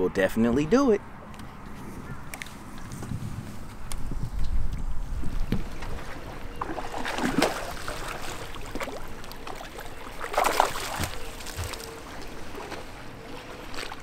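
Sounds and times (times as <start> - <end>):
water lapping against hull: 4.1 - 14.0
fish splashing at surface: 6.6 - 12.0.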